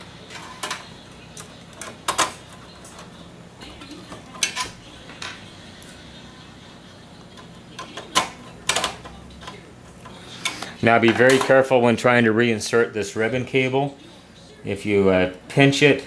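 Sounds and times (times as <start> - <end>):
screwdriver clicking on sheet metal: 7.3 - 10.6.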